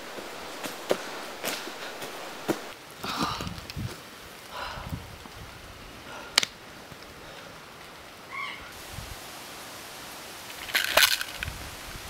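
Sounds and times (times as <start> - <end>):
plastic pill bottle rattling: 10.6 - 11.5.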